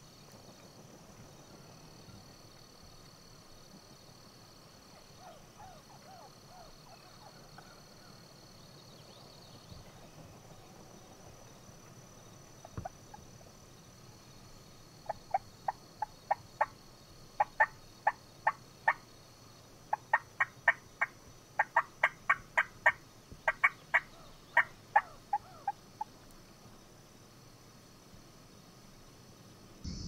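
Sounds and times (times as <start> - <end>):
turkey yelping: 21.7 - 25.8.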